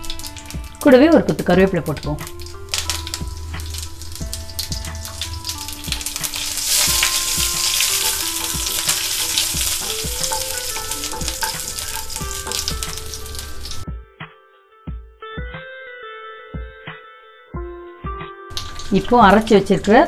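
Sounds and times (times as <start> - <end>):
spices sizzling and crackling in oil: 0.0 - 13.8, 18.5 - 20.0.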